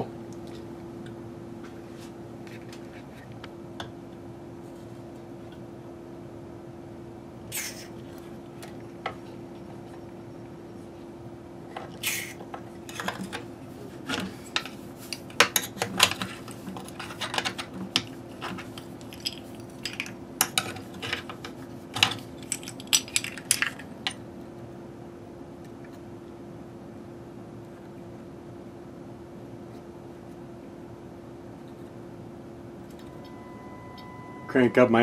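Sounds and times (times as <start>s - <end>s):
low hum: 32.7s - 35.0s.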